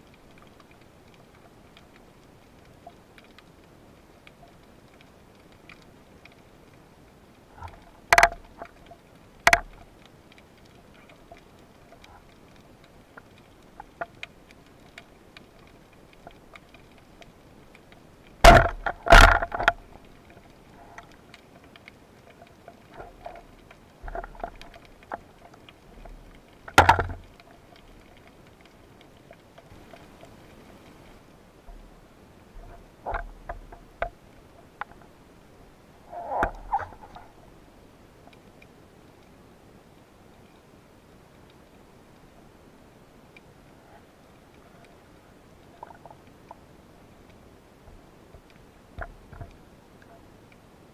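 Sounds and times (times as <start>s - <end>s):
sharp underwater knocks: 7.6s - 8.4s, 18.4s - 19.8s, 26.7s - 27.2s
speargun firing cracks: 18.5s - 18.8s.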